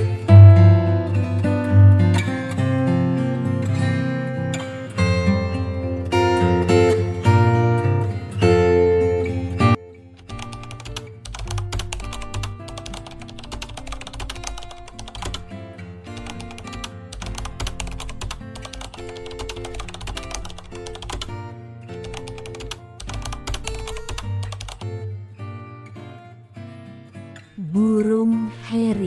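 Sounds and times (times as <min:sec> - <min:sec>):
keyboard typing clicks: 0:10.2 - 0:15.5, 0:16.2 - 0:21.3, 0:22.0 - 0:24.8.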